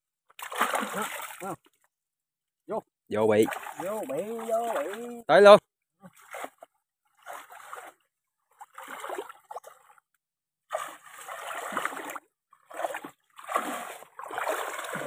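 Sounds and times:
water splashing from wading: 0:00.4 - 0:01.6, 0:03.3 - 0:05.3, 0:06.1 - 0:10.0, 0:10.7 - 0:15.0.

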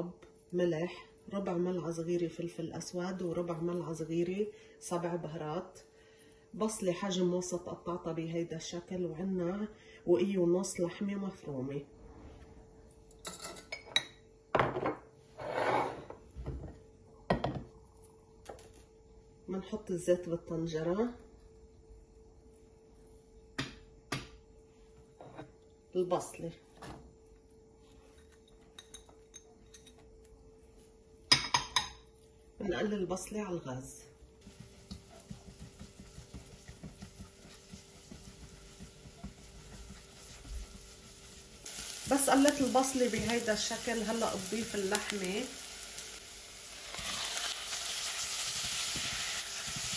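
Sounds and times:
dishes clinking: 0:13.2 - 0:16.2, 0:31.3 - 0:32.0
cookware scraping: 0:14.7 - 0:16.2
spatula scraping a pot: 0:15.4 - 0:16.1
onion sizzling in oil: 0:34.4 - 0:49.9.

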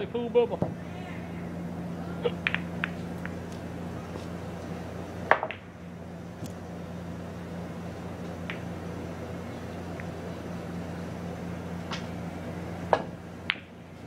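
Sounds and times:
steady low hum: 0:00.0 - 0:14.0
pool balls clacking: 0:02.2 - 0:03.6, 0:05.2 - 0:05.8, 0:08.2 - 0:08.9, 0:12.9 - 0:13.8.

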